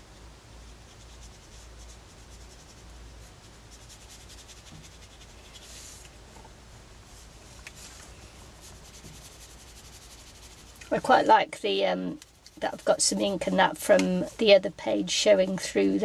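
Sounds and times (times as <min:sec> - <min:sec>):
drawing tool scratching paper: 0:03.6 - 0:05.9, 0:08.6 - 0:11.4.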